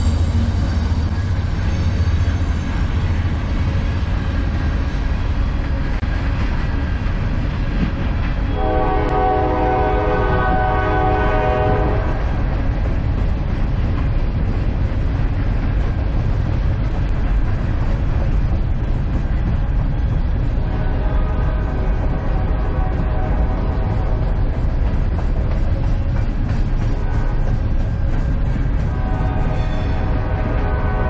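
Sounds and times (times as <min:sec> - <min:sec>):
rail cars rumbling past: 0:00.0 - 0:31.0
train horn chord: 0:08.5 - 0:12.4, 0:20.7 - 0:24.2, 0:26.9 - 0:27.5, 0:28.9 - 0:31.0.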